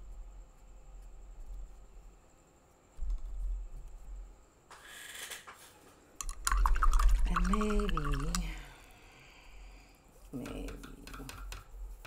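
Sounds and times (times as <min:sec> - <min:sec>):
brush handle clicking on jar: 0:06.2 - 0:08.5
paintbrush swishing in water: 0:06.5 - 0:08.6.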